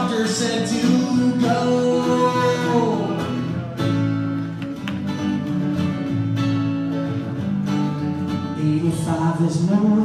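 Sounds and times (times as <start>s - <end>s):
acoustic guitar strumming chords: 0.0s - 10.0s.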